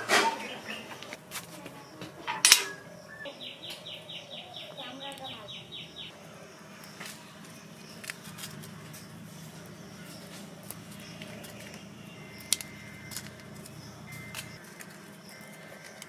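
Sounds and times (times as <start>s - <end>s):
dry chillies crackling: 4.6s - 5.5s, 6.6s - 16.0s.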